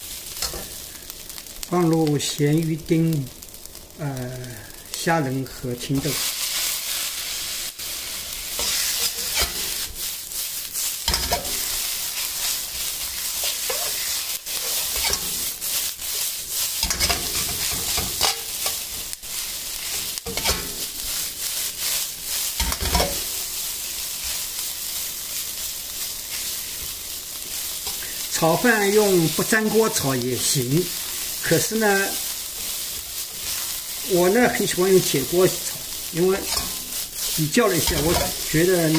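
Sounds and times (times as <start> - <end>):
rice sizzling in wok: 0.0 - 38.9
metal spatula scraping pan: 8.5 - 10.1, 10.7 - 19.1, 19.8 - 21.2, 21.8 - 23.3, 35.6 - 38.9.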